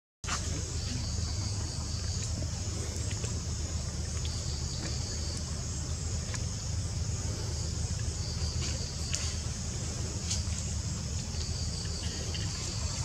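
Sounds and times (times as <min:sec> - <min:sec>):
low steady rumble: 0:00.2 - 0:13.0
insect chorus chirring: 0:00.3 - 0:13.0.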